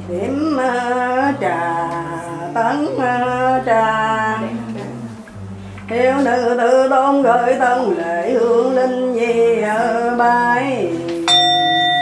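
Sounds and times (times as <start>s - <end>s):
person chanting: 0.0s - 12.0s
bell ringing: 11.3s - 12.0s.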